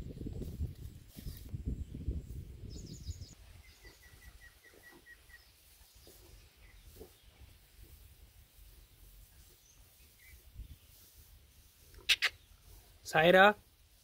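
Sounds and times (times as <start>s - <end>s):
birds chirping: 1.8s - 14.0s
bird piping notes: 12.0s - 12.6s.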